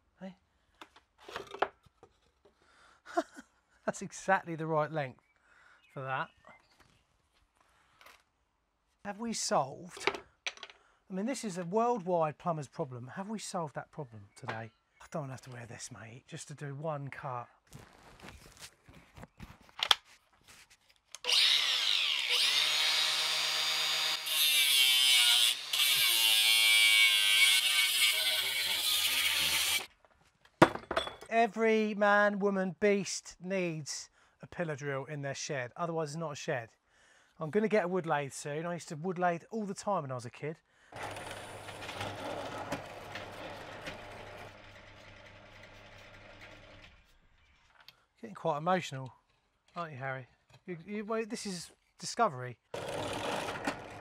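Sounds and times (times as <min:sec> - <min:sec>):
power tool cutting: 0:21.2 - 0:29.9, 0:41.0 - 0:46.8, 0:52.8 - 0:54.0
pillar drill motor hum: 0:41.0 - 0:46.9, 0:52.8 - 0:54.0.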